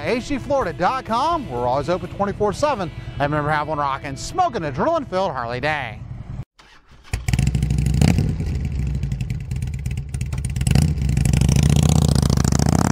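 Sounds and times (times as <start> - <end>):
motorcycle engine revving: 6.1 - 12.9.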